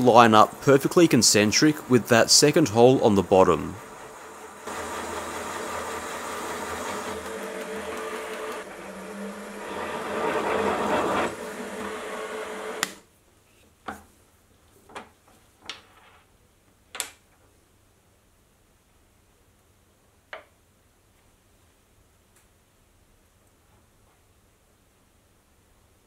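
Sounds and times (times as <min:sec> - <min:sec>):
milling machine spindle running: 0:01.4 - 0:13.0
drill cutting through metal: 0:04.6 - 0:13.0.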